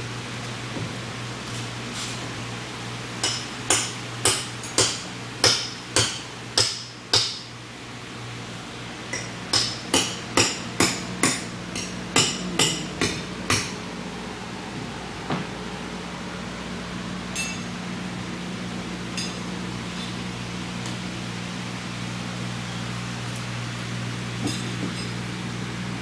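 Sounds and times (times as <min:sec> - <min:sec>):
hammer blows: 0:09.2 - 0:13.9.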